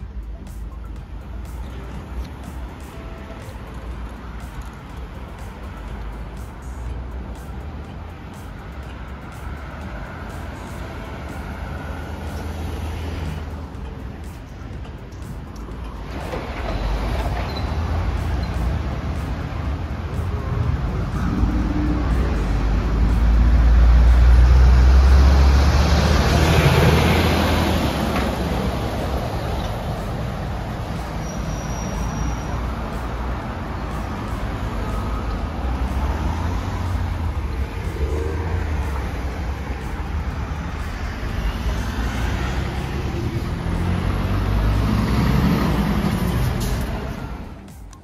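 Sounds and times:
street traffic: 0.0s - 48.0s
truck engine rumble: 0.0s - 48.0s
tyre and road noise: 0.0s - 48.0s
heavy vehicle passing: 1.1s - 47.9s.

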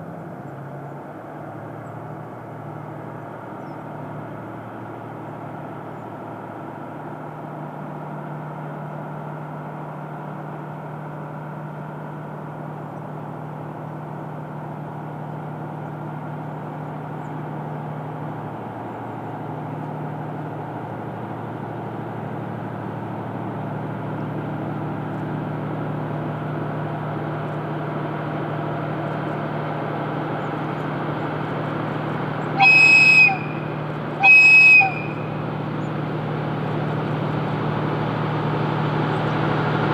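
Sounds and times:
locomotive engine drone: 0.0s - 39.9s
train horn blast: 32.6s - 35.4s.

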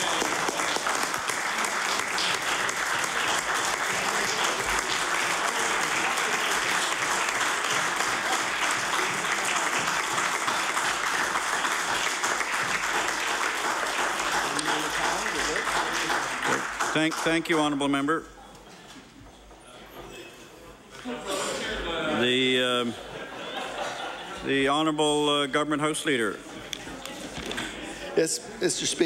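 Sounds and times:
crowd applauding: 0.0s - 18.0s.

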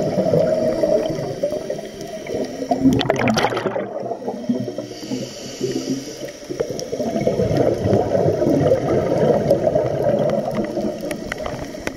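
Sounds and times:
bubbles gurgling underwater: 0.0s - 5.0s, 5.6s - 11.9s
regulator inhale hiss: 0.4s - 2.8s, 4.1s - 7.2s.

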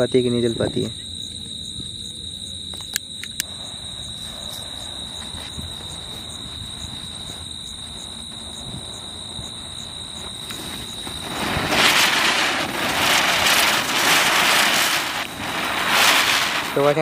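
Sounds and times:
crickets chirring: 0.0s - 17.0s
sharp clicks: 2.8s - 3.5s
gas lighter flame hissing: 9.2s - 17.0s.

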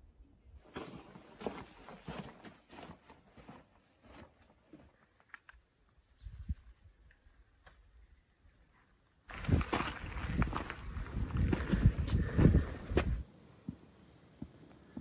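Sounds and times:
footsteps crunching on sand: 0.7s - 5.0s, 9.3s - 13.2s.

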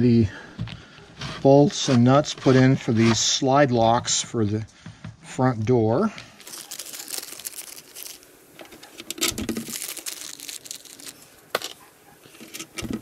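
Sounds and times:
plastic bag crinkling: 6.4s - 13.0s.

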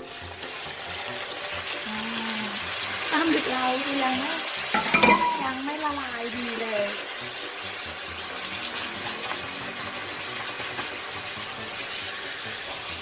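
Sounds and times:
squid sizzling in hot oil: 0.0s - 13.0s.

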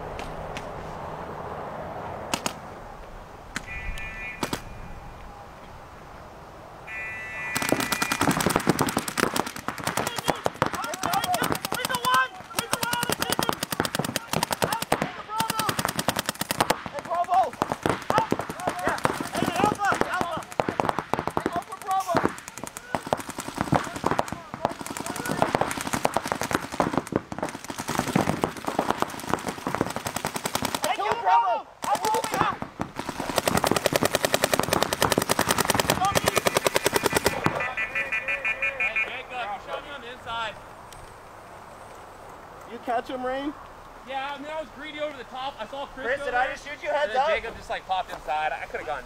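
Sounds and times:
paintball markers rapid fire: 7.5s - 31.2s, 31.8s - 37.7s.

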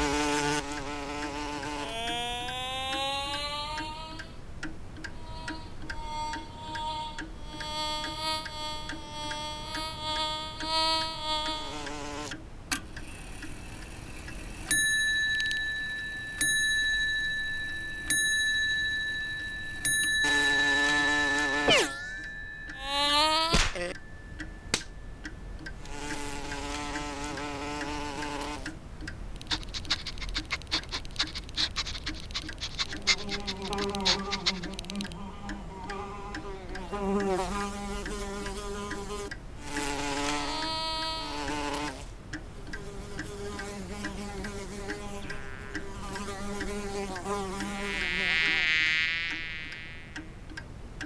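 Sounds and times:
cartoon bee buzzing: 0.0s - 4.4s, 5.1s - 12.4s, 20.2s - 22.1s, 22.7s - 24.0s, 25.8s - 28.8s, 29.4s - 50.3s
low buzz: 0.0s - 16.4s, 17.1s - 31.2s, 32.8s - 50.5s
rapid light ticking: 0.0s - 51.0s.

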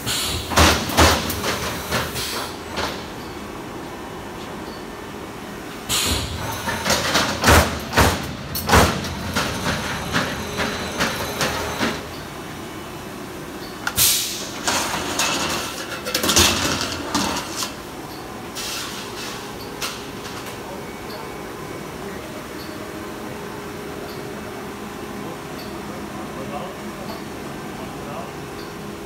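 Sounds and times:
knocks and clanks: 6.0s - 12.1s.

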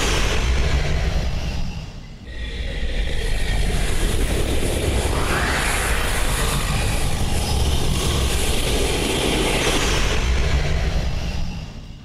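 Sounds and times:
lion roaring: 2.3s - 4.4s.

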